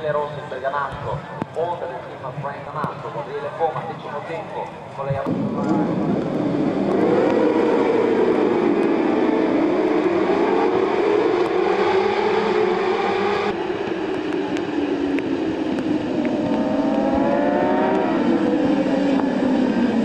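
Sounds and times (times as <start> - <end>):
racing motorcycle engines: 5.2 - 20.0.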